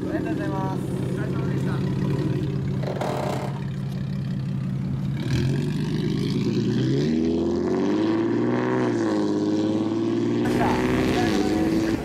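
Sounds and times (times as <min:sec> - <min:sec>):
car engine accelerating: 0:00.0 - 0:12.0.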